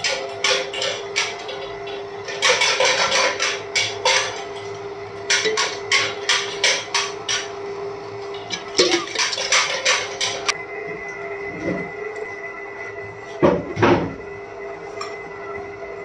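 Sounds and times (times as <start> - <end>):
dough hook clattering against bowl: 0.0 - 4.6, 5.3 - 7.5
stand mixer motor hum: 0.0 - 16.0.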